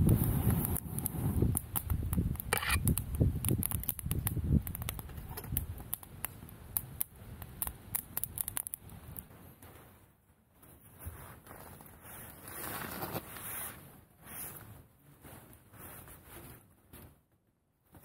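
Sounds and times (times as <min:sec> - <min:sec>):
fire crackling and popping: 0:00.0 - 0:10.3.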